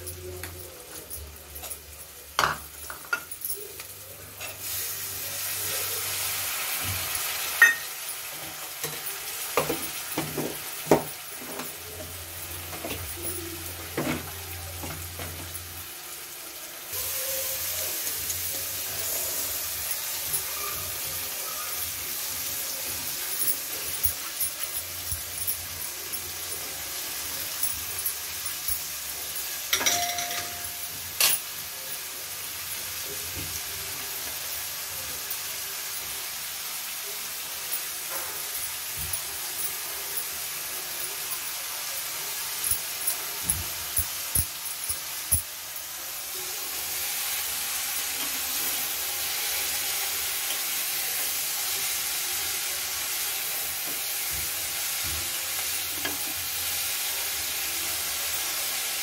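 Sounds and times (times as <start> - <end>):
cabbage sizzling in a metal pan: 0.0 - 59.0
metal spoon clinking against pan: 0.1 - 4.6, 7.5 - 11.9, 22.8 - 31.6, 41.1 - 45.6.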